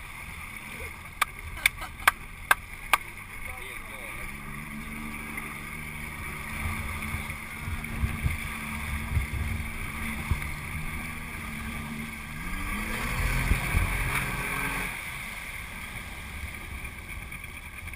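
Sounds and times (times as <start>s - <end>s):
motorboat engine revving: 0.0s - 17.9s
wind buffeting microphone: 6.3s - 14.2s.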